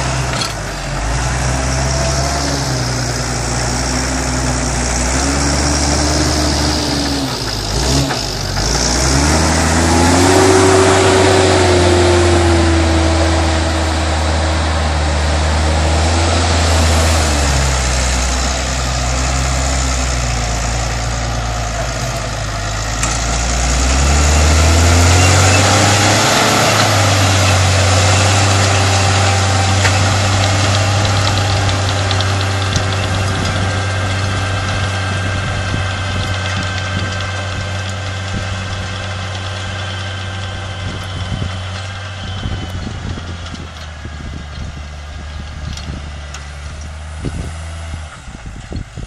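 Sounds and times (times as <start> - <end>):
tractor diesel engine under load: 0.0 - 49.0.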